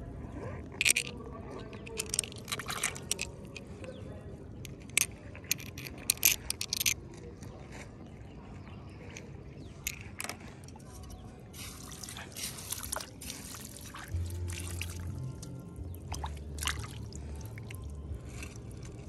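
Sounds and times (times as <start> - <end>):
clam shells clicking together: 0.8 - 3.7, 4.7 - 7.0, 9.8 - 10.4
faint trickle of water: 9.0 - 19.0
plastic shovel digging wet mud: 11.6 - 19.0.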